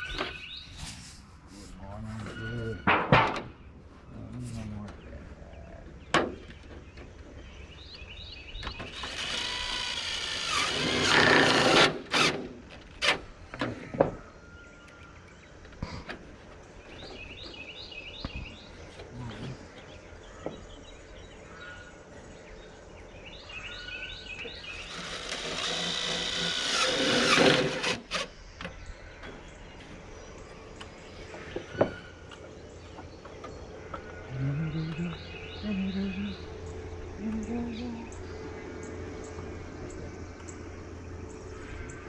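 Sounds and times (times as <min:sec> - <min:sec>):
power drill driving screws into metal: 0:08.8 - 0:13.2, 0:24.9 - 0:28.3.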